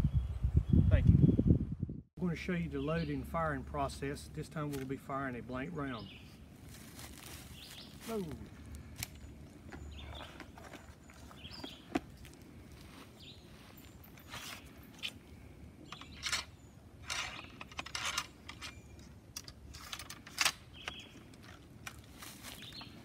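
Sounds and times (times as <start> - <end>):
ramrod scraping and clinking: 15.8 - 22.1.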